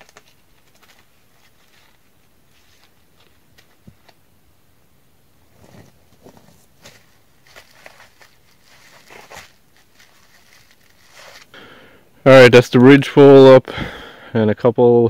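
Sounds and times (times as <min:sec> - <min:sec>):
footsteps over logs and brush: 0:05.5 - 0:11.5.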